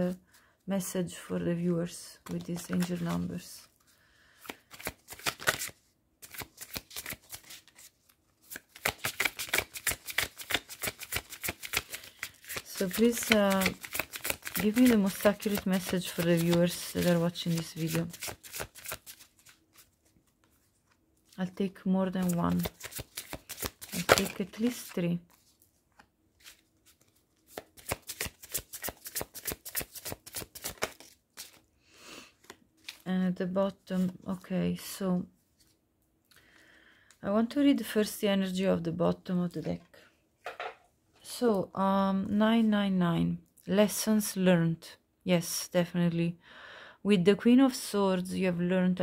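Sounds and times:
cards being shuffled: 2.2s - 3.2s, 4.4s - 21.4s, 22.1s - 31.6s, 32.4s - 33.1s.

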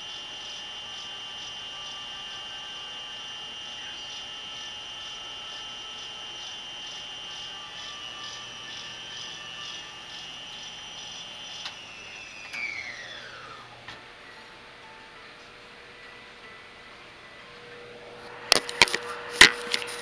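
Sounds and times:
washing machine spin whine: 0.0s - 20.0s.

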